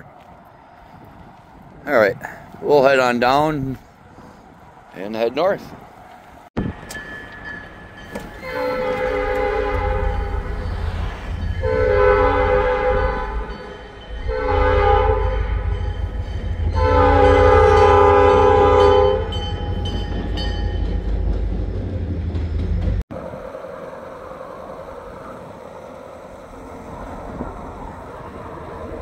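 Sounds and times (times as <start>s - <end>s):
locomotive engine rumbling: 0.0s - 29.0s
locomotive horn blasts: 8.4s - 10.6s, 11.6s - 15.9s, 16.7s - 19.6s.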